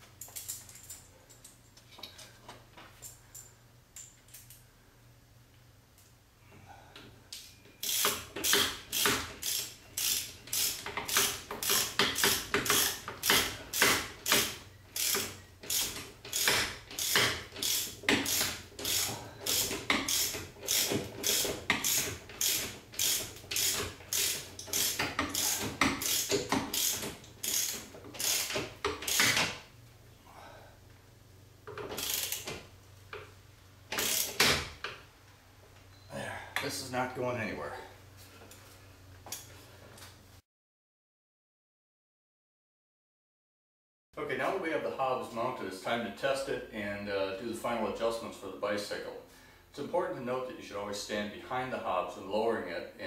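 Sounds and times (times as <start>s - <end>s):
socket wrench ratcheting: 7.8s - 29.5s, 31.8s - 32.6s, 33.9s - 34.5s.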